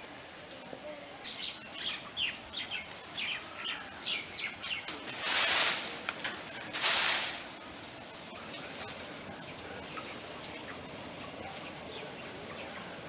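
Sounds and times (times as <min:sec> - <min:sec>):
bird chirping: 0:01.2 - 0:04.9
short bursts of hiss: 0:05.0 - 0:06.1, 0:06.7 - 0:07.6.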